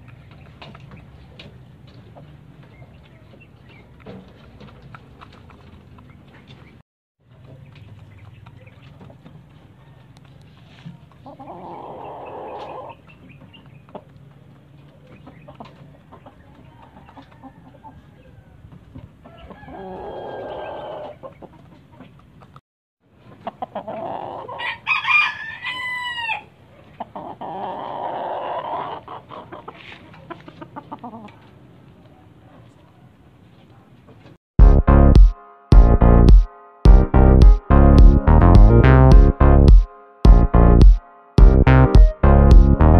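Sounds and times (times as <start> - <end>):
chicken clucking: 0.2 - 22.6, 23.2 - 24.9, 26.7 - 33.7
roosters crowing: 16.8 - 21.2, 24.0 - 26.6.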